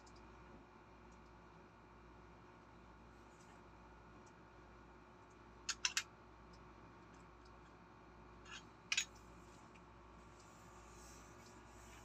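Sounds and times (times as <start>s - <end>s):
small metal parts clicking: 5.7s - 6.1s, 8.4s - 9.2s.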